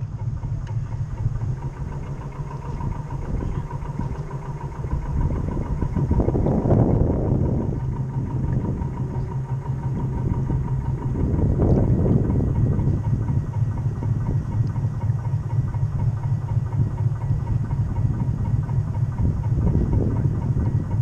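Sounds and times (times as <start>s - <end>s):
model boat motor whining: 0.0s - 21.0s.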